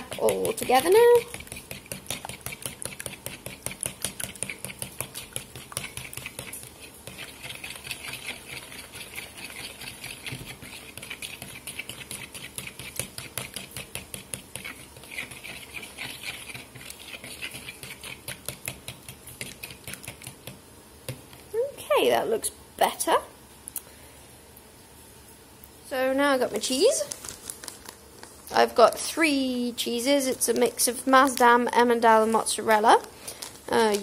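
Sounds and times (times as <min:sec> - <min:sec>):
fork whisking in plastic bowl: 0:00.0 - 0:20.6.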